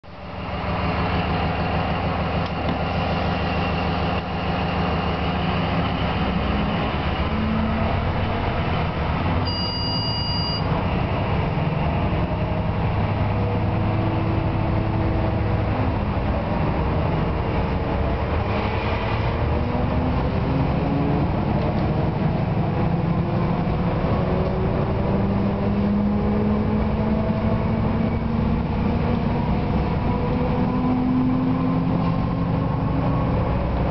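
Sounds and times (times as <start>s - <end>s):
diesel locomotive engine running: 0.0s - 33.9s
high two-tone beep: 9.4s - 10.7s.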